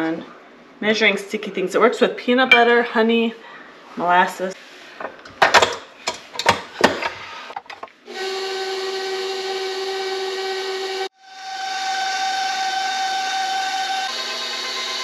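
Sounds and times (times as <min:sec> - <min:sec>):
stand mixer motor whining: 0:08.2 - 0:15.0.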